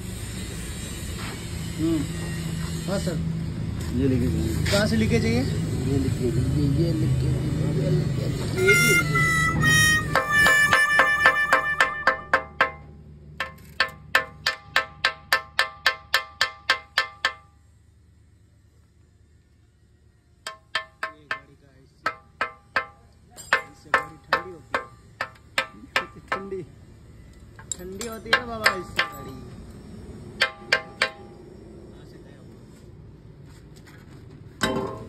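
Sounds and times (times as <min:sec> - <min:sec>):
metal strikes ringing: 0:08.6 - 0:17.5, 0:27.8 - 0:29.6, 0:30.4 - 0:31.4.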